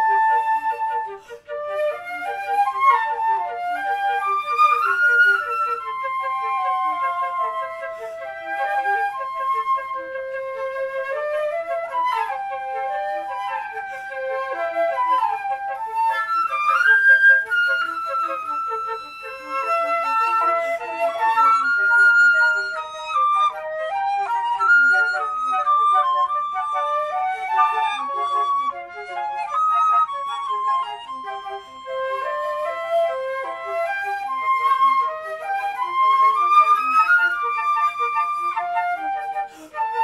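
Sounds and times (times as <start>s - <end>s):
flutes playing together: 0.0s - 40.0s.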